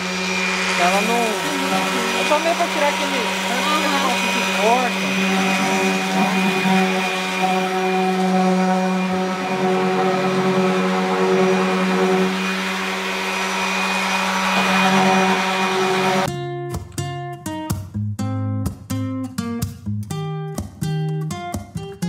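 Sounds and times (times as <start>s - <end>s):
electric sander humming: 0.0s - 16.3s.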